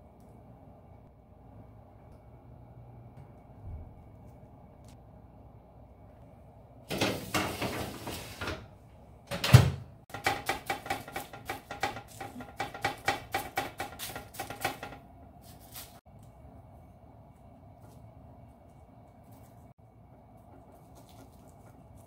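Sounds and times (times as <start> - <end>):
baking tray scraping rattle: 6.9 - 8.7.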